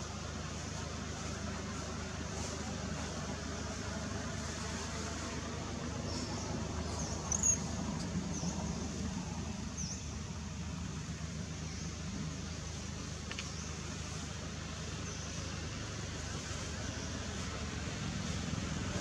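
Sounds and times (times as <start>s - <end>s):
low outdoor rumble: 0.0s - 19.0s
short high-pitched chirps: 7.3s - 7.7s.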